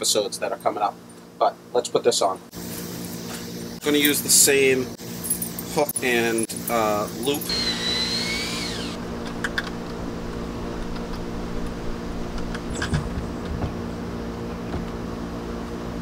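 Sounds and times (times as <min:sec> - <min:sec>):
steady background hum: 0:00.0 - 0:16.0
cordless drill whirring: 0:07.4 - 0:09.8
wooden ramp clicks and knocks: 0:12.3 - 0:13.9.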